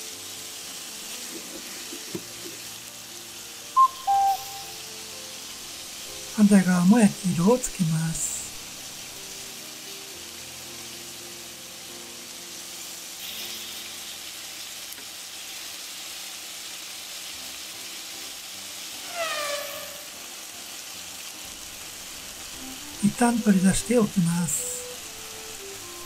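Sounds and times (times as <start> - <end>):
meat sizzling in a frying pan: 0.0 - 26.0
short falling tone: 3.8 - 4.8.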